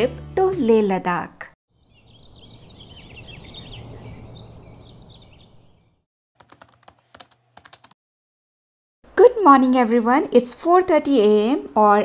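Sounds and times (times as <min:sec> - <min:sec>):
birds chirping: 0:01.7 - 0:06.0
keyboard typing clicks: 0:06.4 - 0:08.0.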